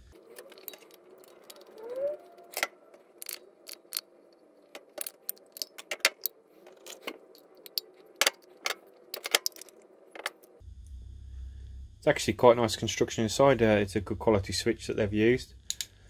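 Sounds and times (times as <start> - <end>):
small metal clicks and clinks: 0.2 - 1.8, 2.5 - 10.6.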